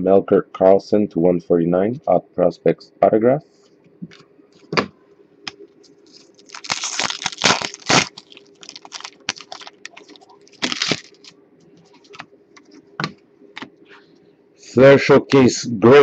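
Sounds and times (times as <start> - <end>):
plastic wrapper crinkling and tearing: 5.8 - 12.3.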